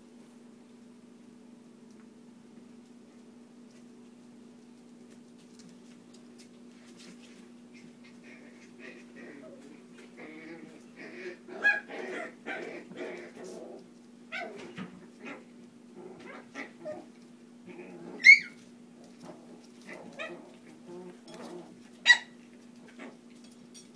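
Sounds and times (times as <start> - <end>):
puppies whimpering and yipping: 18.2 - 18.6
puppy sharp yelps: 18.2 - 18.6, 22.0 - 22.4.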